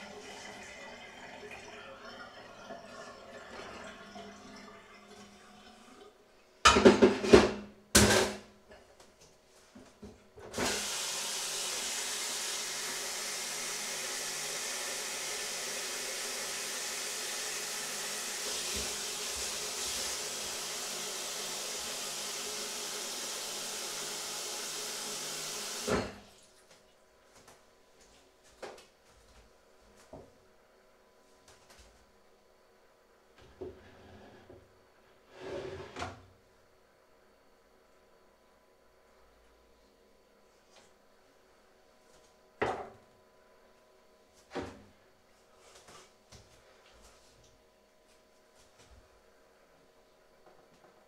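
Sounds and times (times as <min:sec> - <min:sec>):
dishes clattering: 0:06.7 - 0:07.6.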